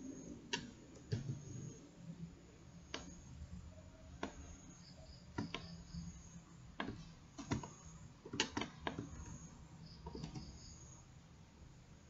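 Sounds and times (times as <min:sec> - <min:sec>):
faint low background noise: 0:00.0 - 0:12.0
mouse and keyboard clicking: 0:02.9 - 0:03.2, 0:04.2 - 0:04.6, 0:05.3 - 0:06.0, 0:06.8 - 0:10.8.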